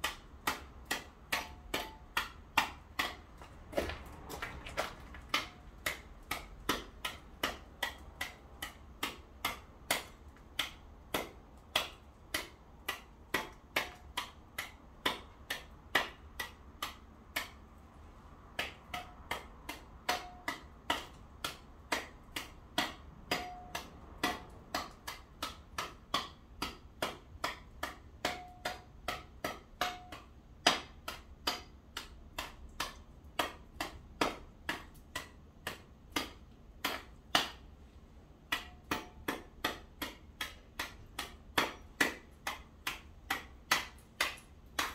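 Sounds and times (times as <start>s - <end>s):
hand tool chipping ice: 0.0s - 17.6s.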